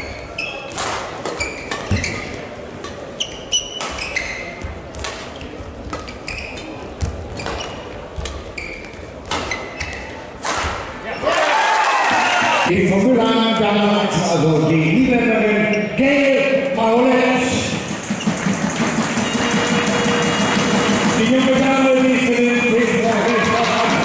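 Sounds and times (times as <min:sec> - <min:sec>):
shoes squeaking on court: 0:00.0 - 0:10.3.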